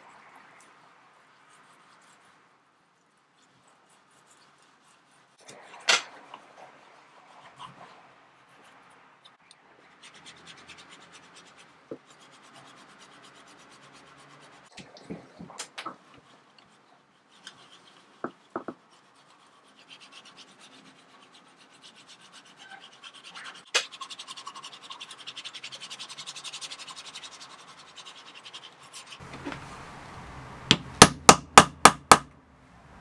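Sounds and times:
hammer striking metal punch: 0:30.7 - 0:32.3.

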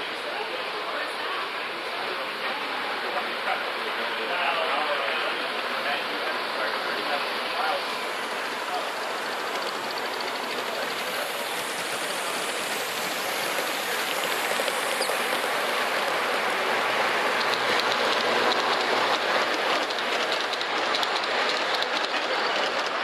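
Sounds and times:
model train running on track: 0:00.0 - 0:23.0
wheels clicking over rail joints: 0:17.0 - 0:23.0.

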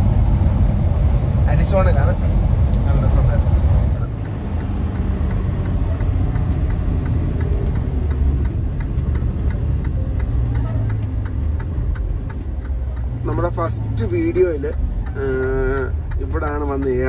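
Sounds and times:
truck engine and road rumble: 0:00.0 - 0:17.0
regular ticking: 0:04.0 - 0:17.0.

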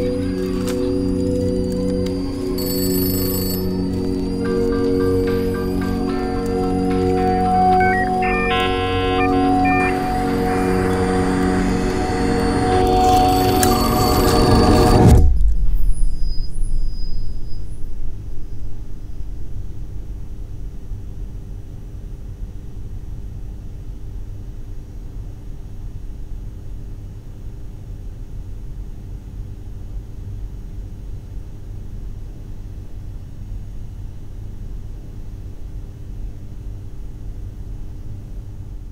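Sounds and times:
faint hum: 0:00.0 - 0:23.8
low rumble: 0:09.9 - 0:16.9.

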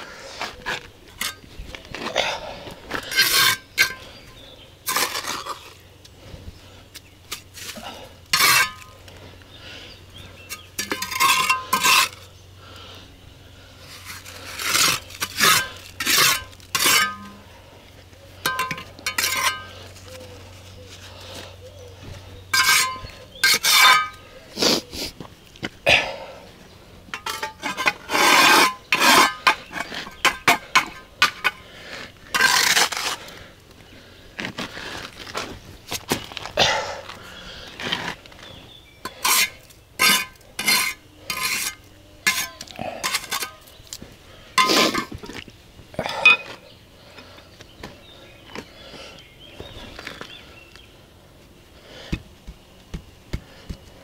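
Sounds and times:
trowel scraping mortar: 0:02.9 - 0:05.8, 0:07.3 - 0:09.0, 0:10.4 - 0:12.3, 0:13.9 - 0:17.4, 0:18.4 - 0:20.1, 0:22.5 - 0:25.2, 0:27.1 - 0:33.5, 0:39.0 - 0:43.8, 0:44.6 - 0:45.4.

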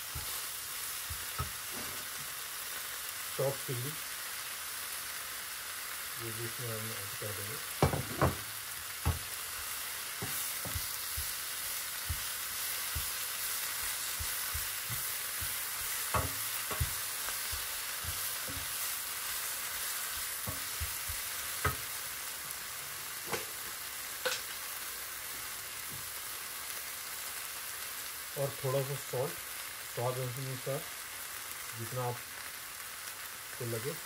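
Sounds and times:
spinach sizzling in oil: 0:00.0 - 0:34.0
wooden spatula knocking pan: 0:01.0 - 0:01.6, 0:07.8 - 0:09.4, 0:10.2 - 0:11.4, 0:12.0 - 0:22.0.

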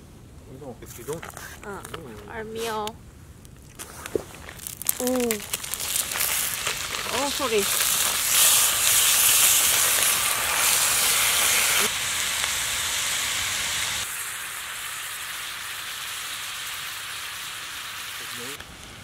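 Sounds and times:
meat and onions sizzling in skillet: 0:04.3 - 0:19.0.

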